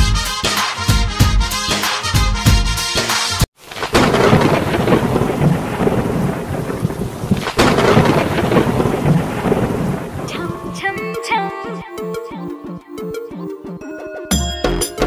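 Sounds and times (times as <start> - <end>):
steady rain: 3.6 - 10.8
thunderclaps: 3.6 - 10.8.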